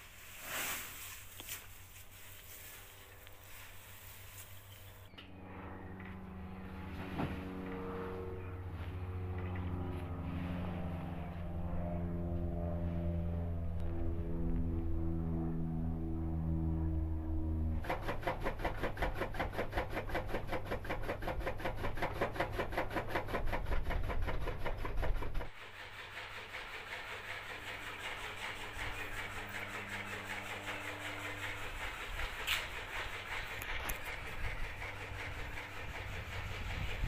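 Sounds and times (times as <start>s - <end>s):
steady engine hum: 0.0s - 37.0s
engine running with fast beat: 4.3s - 37.0s.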